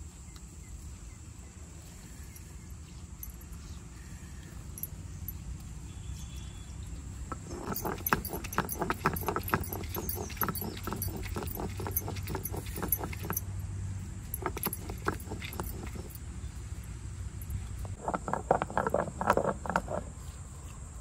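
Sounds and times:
stone roller grinding on stone: 7.3s - 13.4s, 14.3s - 16.2s, 17.8s - 20.1s.

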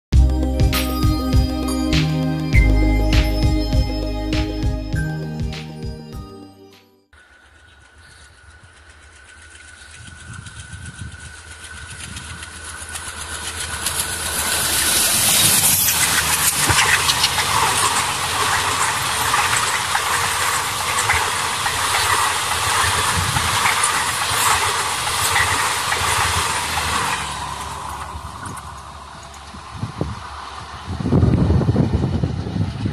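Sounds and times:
diesel locomotive engine: 0.1s - 6.3s, 7.2s - 32.9s
train wheels clattering on rails: 7.3s - 32.9s.

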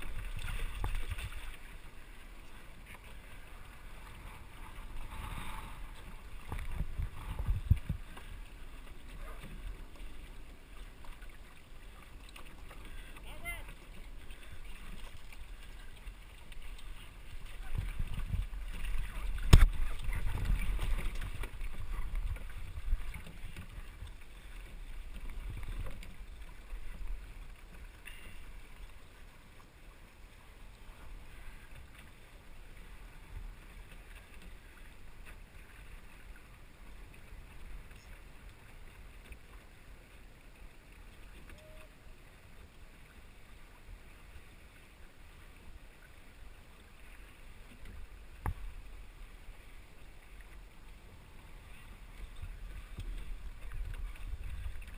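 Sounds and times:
water washing along hull: 0.0s - 54.9s
wind buffeting microphone: 6.4s - 8.2s.

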